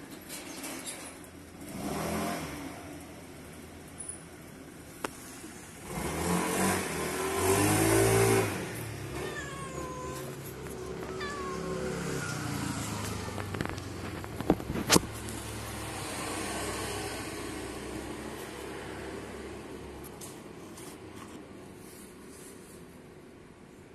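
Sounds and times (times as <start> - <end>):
cat meowing: 9.0 - 13.6.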